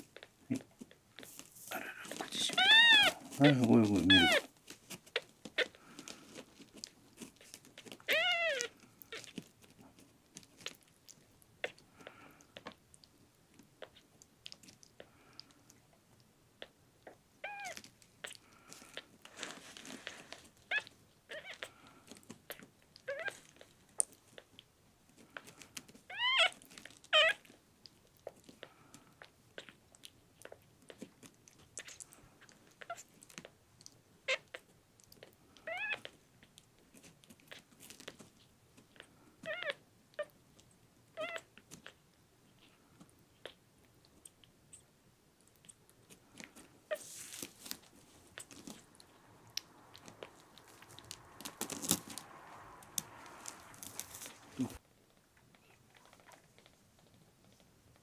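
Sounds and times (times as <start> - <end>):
kitten mewing: 1.6 - 4.5
rustle: 17.7 - 24.5, 46.1 - 54.8
kitten suckling wet clicks: 26.2 - 42.2, 43.1 - 54.4.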